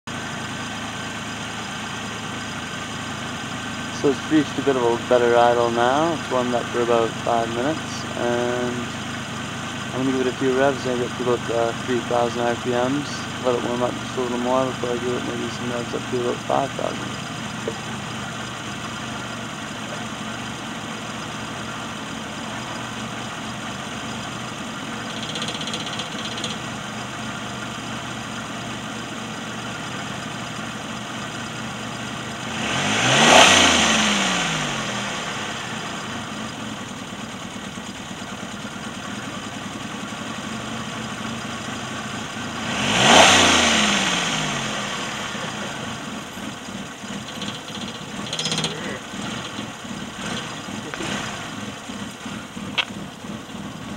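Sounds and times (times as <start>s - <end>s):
car engine idling and revving: 0.0s - 53.9s.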